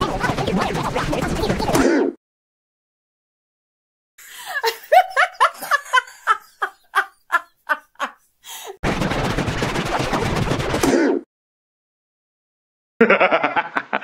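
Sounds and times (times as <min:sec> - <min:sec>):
person laughing: 0:04.2 - 0:08.8, 0:13.0 - 0:14.0.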